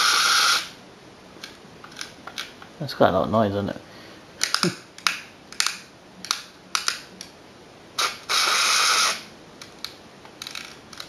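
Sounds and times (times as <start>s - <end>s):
hissing whir: 0.0s - 0.8s, 8.0s - 9.3s
toy car plastic clicks and rattles: 9.6s - 11.0s.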